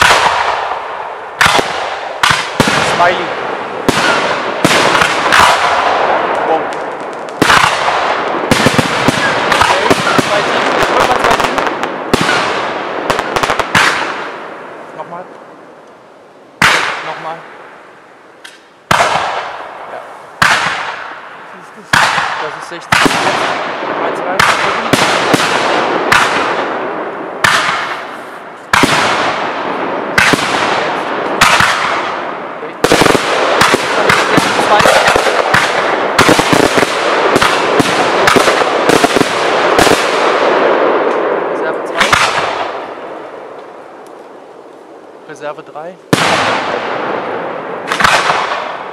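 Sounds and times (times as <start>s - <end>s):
fireworks bangs: 0.0s - 48.9s
fireworks crackling: 0.0s - 48.9s.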